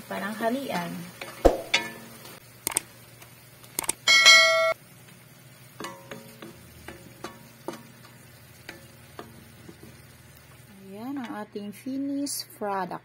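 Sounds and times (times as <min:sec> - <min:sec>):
sharp clicks: 0:02.6 - 0:02.9, 0:03.7 - 0:04.0
loud ringing tone: 0:04.1 - 0:04.8.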